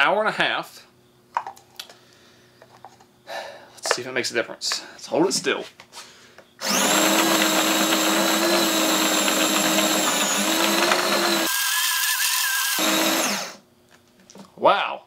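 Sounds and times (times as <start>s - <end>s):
food processor motor whining: 6.6s - 13.6s.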